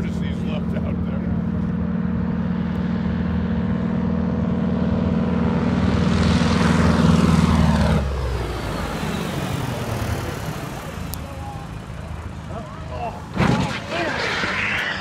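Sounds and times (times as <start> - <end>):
radial aircraft engine at full power: 0.0 - 13.3
whoosh of passing plane: 1.8 - 10.7.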